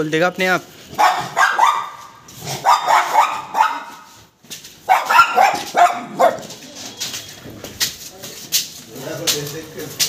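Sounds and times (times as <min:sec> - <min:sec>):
dog barking: 0:00.9 - 0:04.1, 0:04.9 - 0:06.6.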